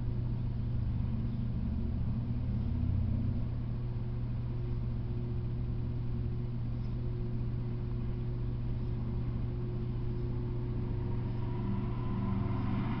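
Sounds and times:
steady low hum: 0:00.0 - 0:13.0
faint higher tone: 0:08.7 - 0:13.0.

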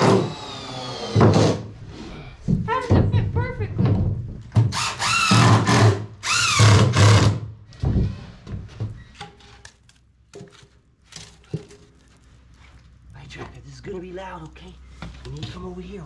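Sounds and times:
power drill driving screws: 0:00.0 - 0:01.6, 0:04.7 - 0:07.4.

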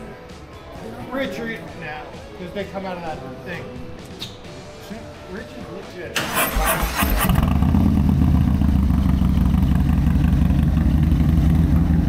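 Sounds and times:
motorcycle starter clatter: 0:06.2 - 0:07.8
motorcycle engine idling: 0:07.2 - 0:12.0.

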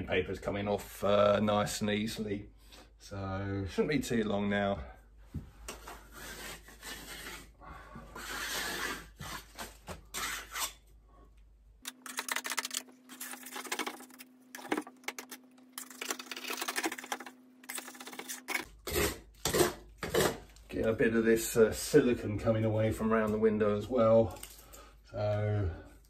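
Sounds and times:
scraper scraping paper off wall: 0:08.1 - 0:10.8.

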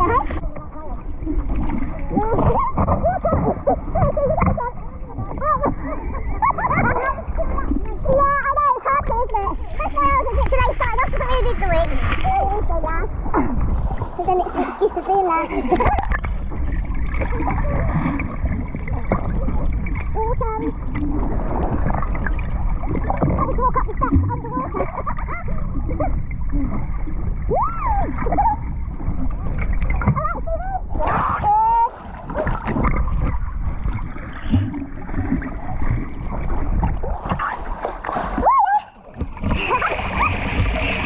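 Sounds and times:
muffled underwater churning rumble: 0:00.0 - 0:41.0
sea water washing: 0:00.0 - 0:41.0
bubbling from swimmer kicking: 0:12.3 - 0:14.9, 0:15.6 - 0:41.0.

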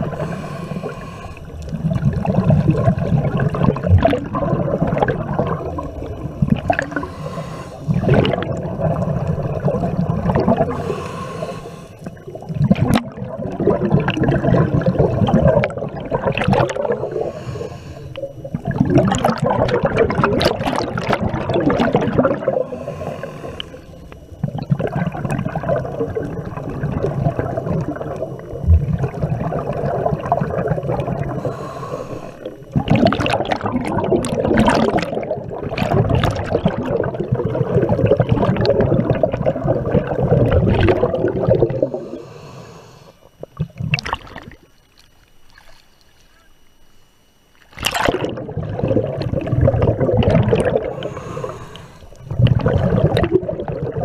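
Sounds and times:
underwater bubbling and gurgling: 0:00.0 - 0:54.0
water splash: 0:47.6 - 0:50.9.

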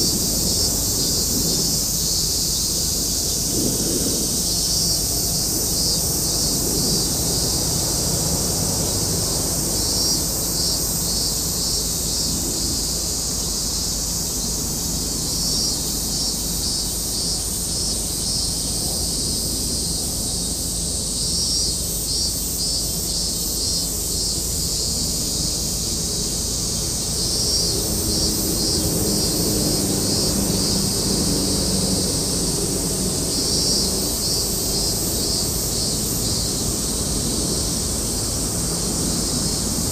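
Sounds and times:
steady low rumble: 0:00.0 - 0:07.5
insects chirping: 0:00.0 - 0:39.9.

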